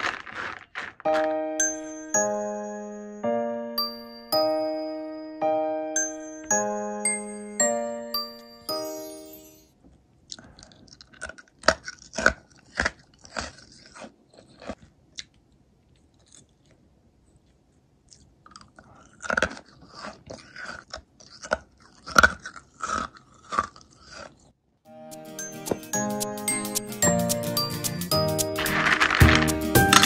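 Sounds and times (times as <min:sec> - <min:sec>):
hard candy crunching: 0:00.0 - 0:01.9, 0:10.3 - 0:16.9, 0:18.0 - 0:24.6, 0:28.2 - 0:30.0.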